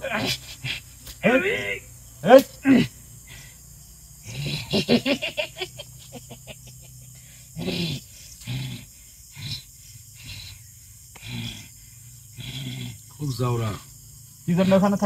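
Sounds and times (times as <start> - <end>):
man growling: 4.2 - 5.0, 7.6 - 10.5, 11.2 - 11.7, 12.3 - 13.9
man laughing: 4.6 - 7.2.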